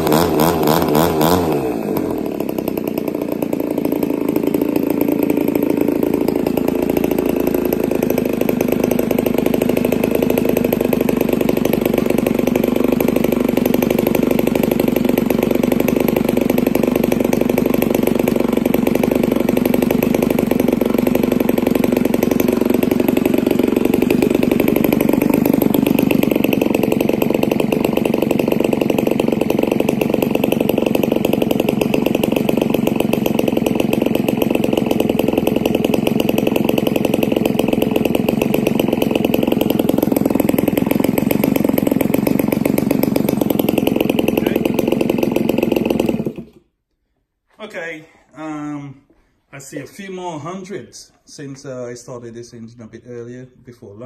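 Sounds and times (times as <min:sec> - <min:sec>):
model engine with propeller: 0:00.0 - 0:46.6.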